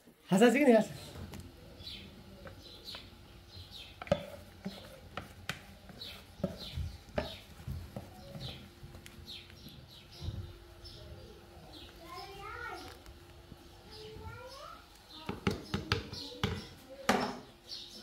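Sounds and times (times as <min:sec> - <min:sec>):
small birds chirping: 0:00.5 - 0:18.0
wooden spatula knocking metal bowl: 0:04.0 - 0:08.6.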